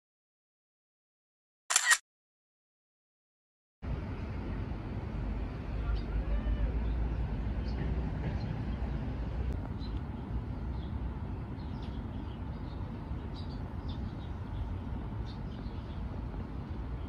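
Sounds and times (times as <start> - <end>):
birds chirping: 5.8 - 17.0.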